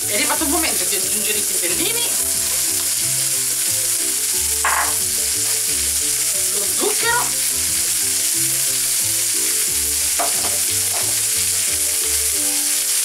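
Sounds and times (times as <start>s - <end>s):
soft background music: 0.0s - 13.0s
vegetables sizzling in pan: 0.0s - 13.0s
pan rattling: 10.2s - 11.2s.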